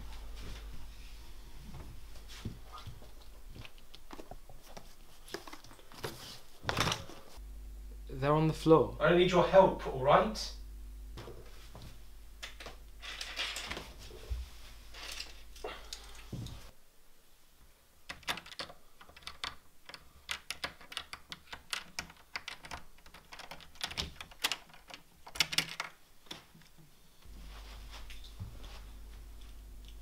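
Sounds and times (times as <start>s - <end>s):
hands rustling papers: 2.2s - 7.3s
key rattling in door lock: 18.1s - 26.0s.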